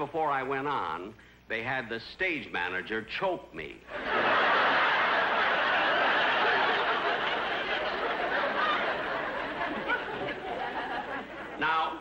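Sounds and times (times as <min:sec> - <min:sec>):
audience laughing: 0:03.9 - 0:12.0.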